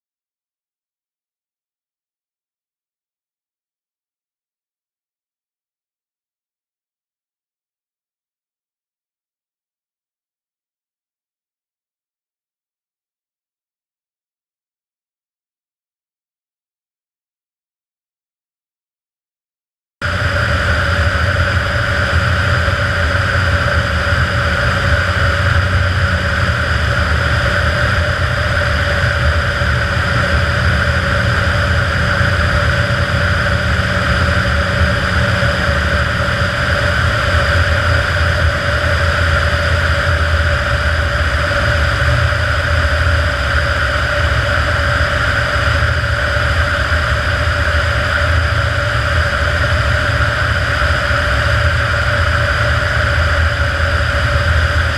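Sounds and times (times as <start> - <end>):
airplane engine and propeller drone: 20.0 - 54.9.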